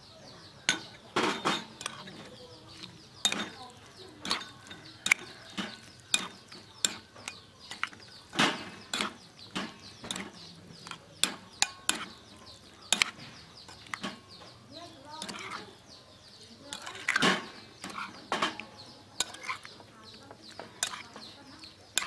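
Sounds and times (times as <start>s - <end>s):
metal spoon clinking glass bowl: 0.7s - 8.0s, 8.9s - 14.2s, 16.7s - 19.7s, 20.8s - 21.2s.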